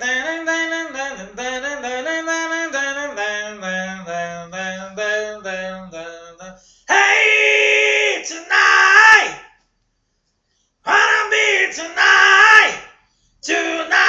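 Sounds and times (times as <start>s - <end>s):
man singing into a microphone: 0.0s - 6.5s.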